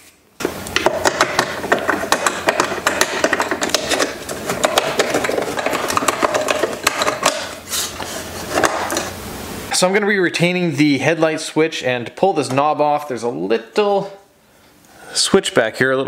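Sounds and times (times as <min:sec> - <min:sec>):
metal scraping: 0:00.8 - 0:09.9.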